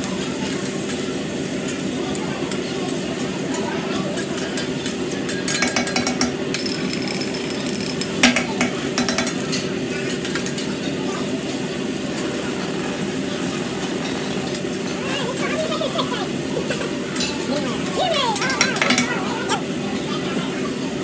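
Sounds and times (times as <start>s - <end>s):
sharp metal clank: 5.5s - 7.1s.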